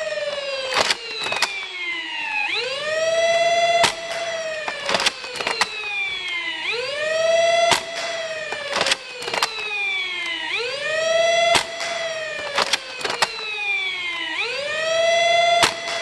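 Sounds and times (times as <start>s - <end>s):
flywheel motors whining: 0.0s - 16.0s
spring blaster firing cracks: 0.0s - 16.0s
re-priming clacks: 7.5s - 14.3s.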